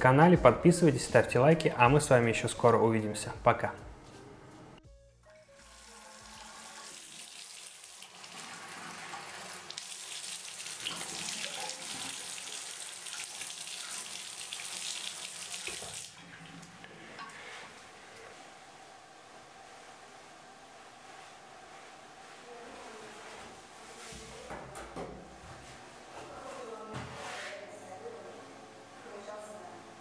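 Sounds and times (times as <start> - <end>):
tap water running into sink: 5.7 - 17.3.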